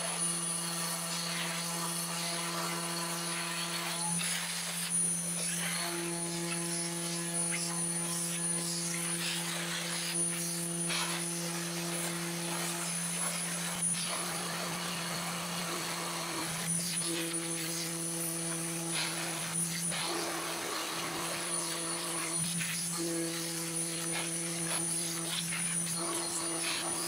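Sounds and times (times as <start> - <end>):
dust-collection vacuum running: 0.0 - 27.0
router spindle hum and whine: 0.0 - 27.0.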